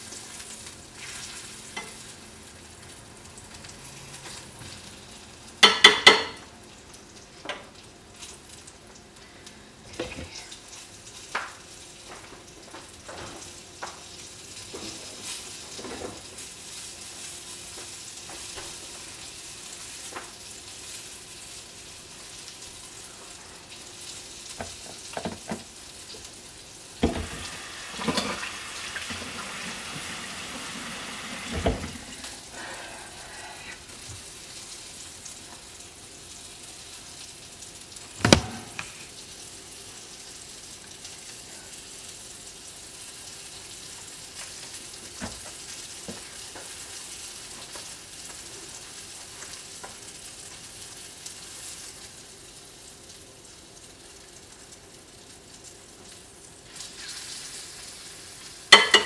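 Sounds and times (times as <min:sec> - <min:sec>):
food sizzling in a pan: 0:00.0 - 0:59.0
utensil clattering on cookware: 0:58.8 - 0:59.0.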